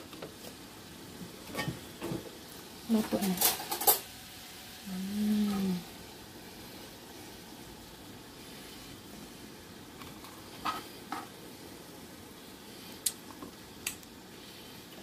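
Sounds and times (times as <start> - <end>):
faint steady hiss: 0.0 - 15.0.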